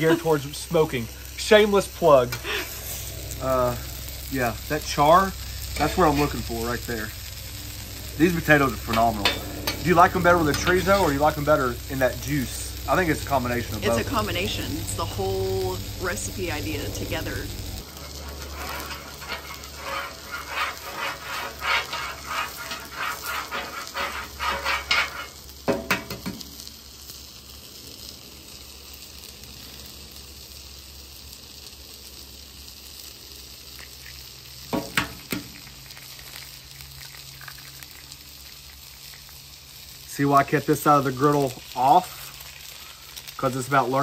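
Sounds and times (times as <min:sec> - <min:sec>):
metal spoon scraping griddle: 0:00.0 - 0:26.4
egg frying sizzle: 0:00.0 - 0:44.0
oil sizzling: 0:00.0 - 0:44.0
egg cracking: 0:33.7 - 0:39.5.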